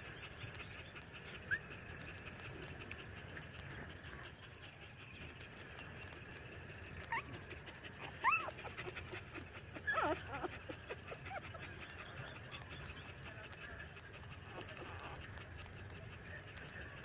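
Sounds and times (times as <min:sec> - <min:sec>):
puppies whimpering and squeaking: 0:06.8 - 0:17.0.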